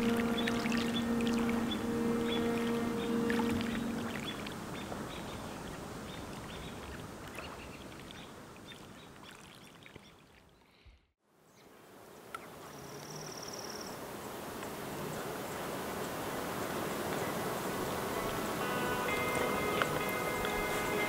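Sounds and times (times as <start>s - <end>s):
steady outdoor hiss: 0.0s - 7.2s, 11.2s - 21.0s.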